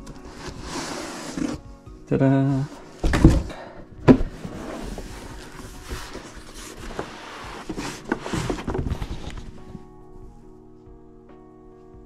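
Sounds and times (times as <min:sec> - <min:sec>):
cardboard lid rustling and scraping: 0:00.0 - 0:01.6, 0:02.7 - 0:09.9.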